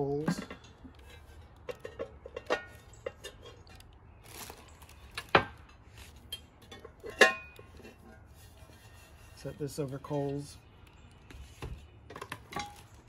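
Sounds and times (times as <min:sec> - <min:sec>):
cast iron pieces clanking: 0:05.2 - 0:08.0, 0:12.1 - 0:13.0.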